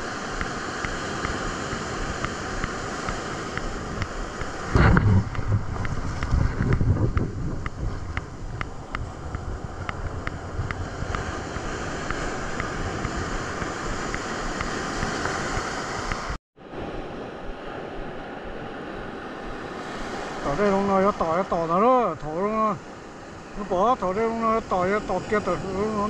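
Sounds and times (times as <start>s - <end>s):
ocean surf washing on beach: 0.0s - 26.0s
wind buffeting microphone: 0.8s - 21.0s.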